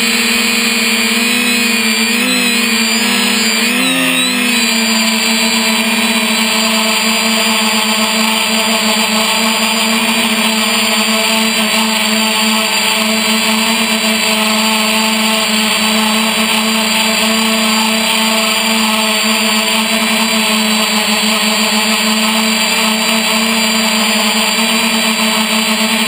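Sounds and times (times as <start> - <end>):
drone propellers whining: 0.0 - 26.0.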